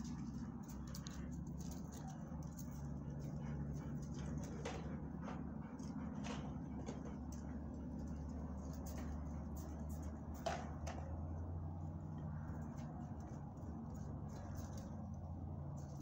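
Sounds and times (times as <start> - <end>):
dogs walking on gravel: 0.0 - 5.1, 5.8 - 10.9
low hum: 0.0 - 16.0.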